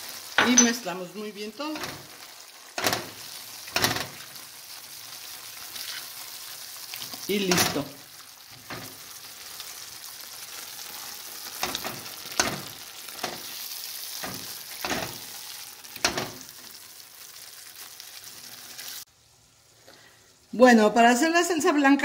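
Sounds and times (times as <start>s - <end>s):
ground beef sizzling in a pot: 0.0s - 22.0s
spatula scraping through meat: 5.7s - 6.2s.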